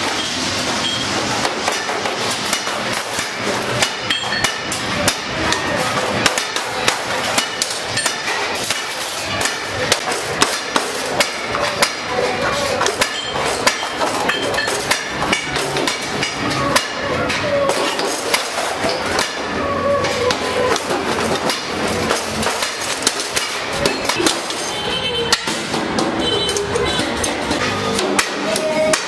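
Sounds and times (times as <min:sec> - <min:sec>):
metallic knocks and clinks: 0:00.0 - 0:04.9, 0:12.8 - 0:19.4.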